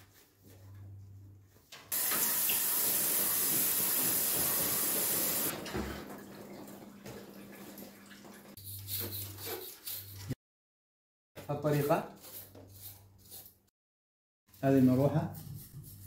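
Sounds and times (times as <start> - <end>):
water spraying from hose nozzle: 1.9 - 5.5.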